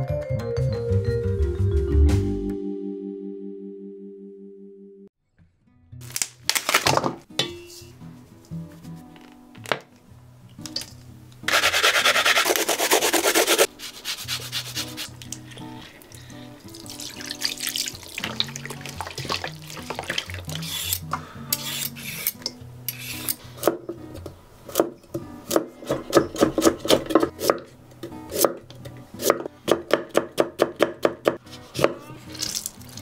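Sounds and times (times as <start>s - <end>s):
background music: 0.0s - 33.0s
wet rubbing in steel bowl: 11.5s - 16.0s.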